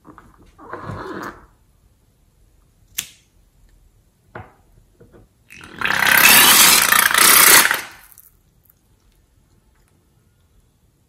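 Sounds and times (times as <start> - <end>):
air sputtering from balloon neck: 5.6 - 8.0.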